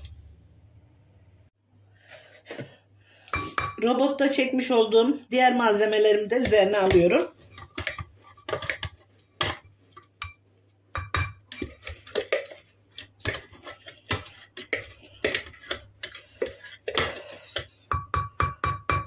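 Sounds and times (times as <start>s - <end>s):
spatula scraping plastic bowl: 6.4s - 10.1s, 11.5s - 17.8s.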